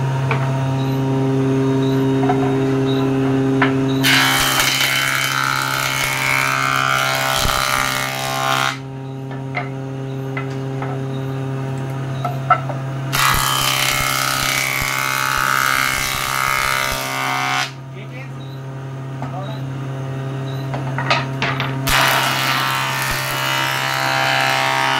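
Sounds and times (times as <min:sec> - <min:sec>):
planer cutting wood: 0:04.0 - 0:08.8, 0:13.1 - 0:17.8, 0:21.8 - 0:24.9.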